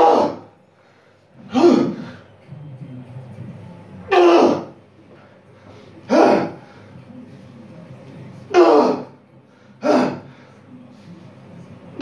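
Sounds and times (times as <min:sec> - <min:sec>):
man grunting: 0:04.1 - 0:04.8, 0:06.1 - 0:06.6, 0:08.5 - 0:09.2, 0:09.8 - 0:10.3.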